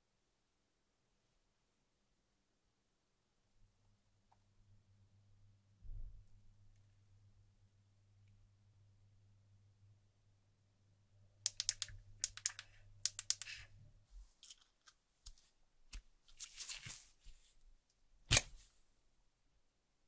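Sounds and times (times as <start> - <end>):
small sharp clicks and taps: 11.4 - 13.6.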